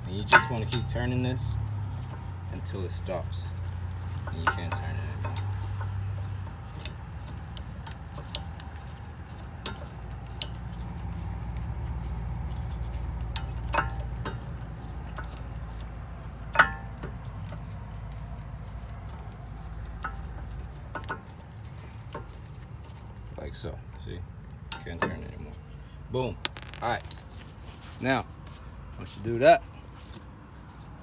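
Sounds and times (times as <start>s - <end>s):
small metallic clicks: 26.4s - 27.3s.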